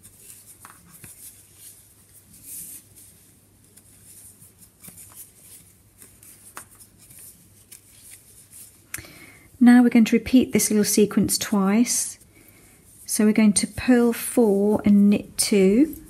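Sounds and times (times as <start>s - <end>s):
yarn rustling: 0.0s - 8.9s, 9.6s - 16.0s.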